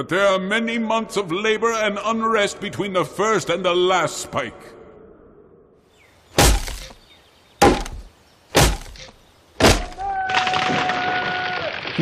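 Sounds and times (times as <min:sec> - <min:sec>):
axe chopping tree trunk: 0:06.4 - 0:07.0, 0:07.6 - 0:10.1
tree trunk cracking and splintering: 0:06.4 - 0:07.0, 0:07.6 - 0:12.0.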